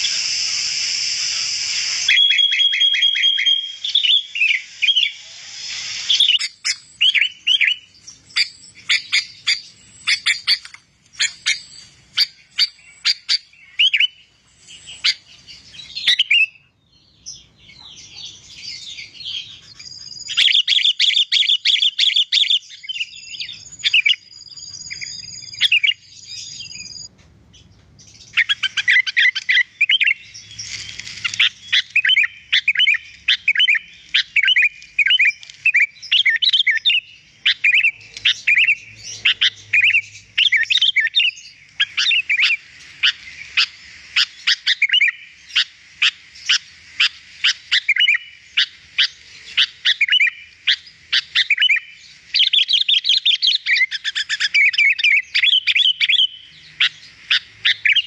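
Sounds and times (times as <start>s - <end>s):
bulbul singing: 0.0s - 58.0s.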